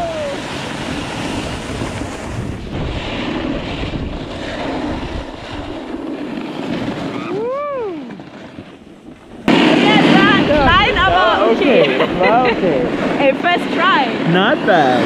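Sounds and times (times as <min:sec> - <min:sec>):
person whooping: 0:00.0 - 0:00.6, 0:07.1 - 0:08.2
snowboards sliding over snow: 0:00.0 - 0:15.0
wind rushing over microphone: 0:00.0 - 0:15.0.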